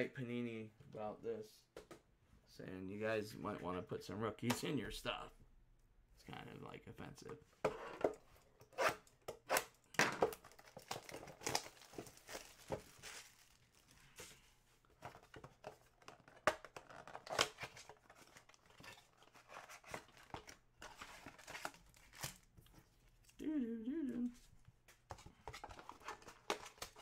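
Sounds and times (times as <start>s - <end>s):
plastic wrapping crinkling and tearing: 10.4s - 14.1s.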